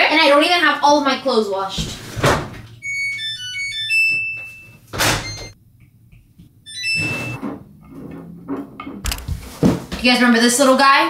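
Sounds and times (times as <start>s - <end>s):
washing machine panel beeping: 2.8s - 5.6s, 6.7s - 7.4s.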